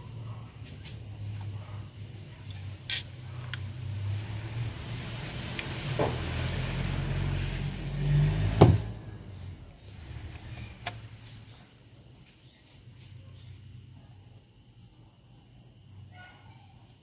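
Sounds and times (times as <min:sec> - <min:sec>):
low engine-like hum: 0:01.2 - 0:11.3
screwdriver metal clicks: 0:02.9 - 0:03.6.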